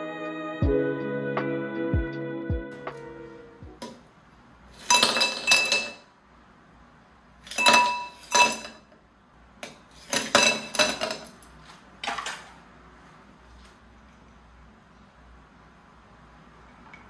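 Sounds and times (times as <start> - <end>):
dishes and cutlery clinking: 4.8 - 6.1, 7.5 - 8.9, 10.0 - 11.4.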